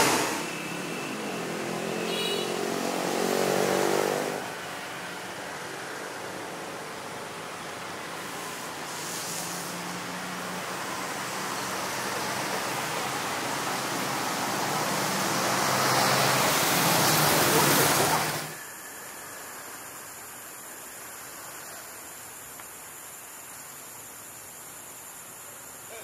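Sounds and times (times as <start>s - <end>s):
motorcycle engine humming: 0.0s - 8.9s, 10.0s - 21.4s
road and tyre noise: 0.0s - 26.0s.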